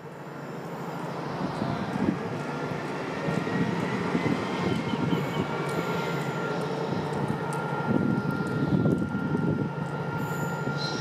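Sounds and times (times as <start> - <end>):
diesel locomotive engine running: 0.0 - 11.0
thin steady whistle: 4.8 - 11.0.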